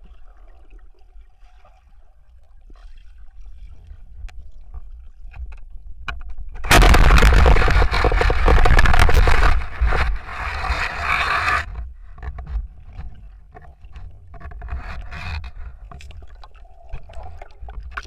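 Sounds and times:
low underwater rumble: 0:00.0 - 0:18.0
spear striking fish crack: 0:06.6 - 0:10.3.

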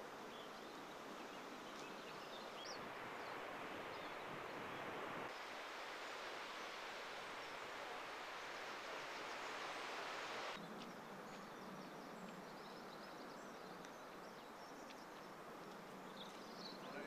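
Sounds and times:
steady hiss: 0:00.0 - 0:10.6.

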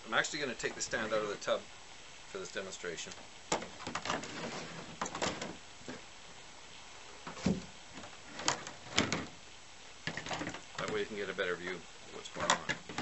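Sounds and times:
plastic knocks and thuds: 0:03.5 - 0:06.0, 0:07.2 - 0:09.4, 0:10.0 - 0:11.1, 0:12.4 - 0:13.0.

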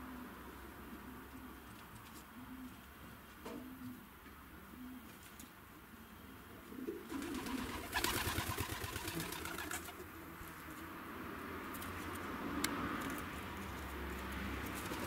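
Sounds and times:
pigeon cooing: 0:02.3 - 0:02.9, 0:03.5 - 0:05.2, 0:05.9 - 0:10.0.

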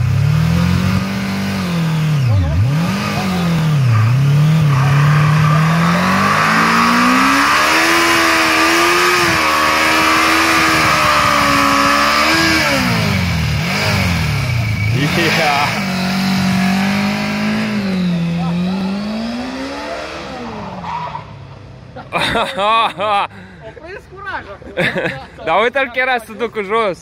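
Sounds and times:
motorcycle engine revving hard: 0:00.0 - 0:20.8.

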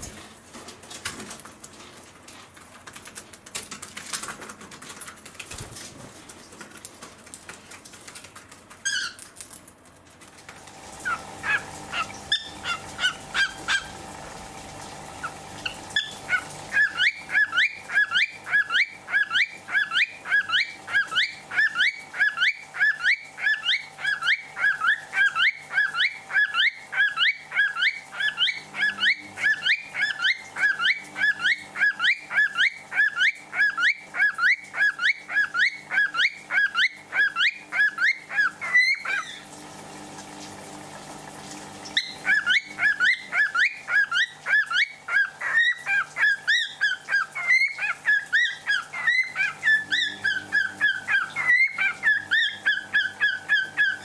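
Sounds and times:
cockatiel chirping: 0:08.8 - 0:09.3, 0:11.0 - 0:13.9, 0:15.6 - 0:39.4, 0:42.0 - 0:54.0.

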